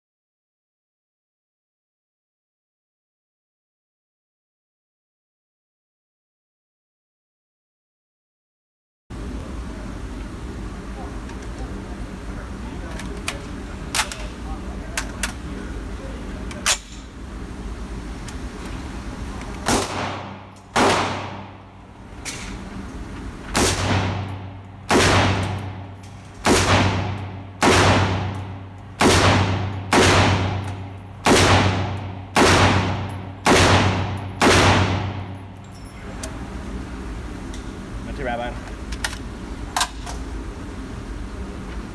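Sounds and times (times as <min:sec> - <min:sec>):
gunshots echoing indoors: 0:19.6 - 0:21.8, 0:23.5 - 0:35.6.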